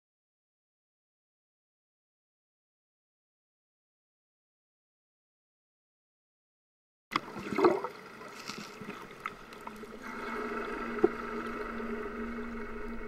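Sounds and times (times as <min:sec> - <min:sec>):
water splashing and bubbling: 0:07.1 - 0:12.1
steady low hum: 0:09.0 - 0:13.0.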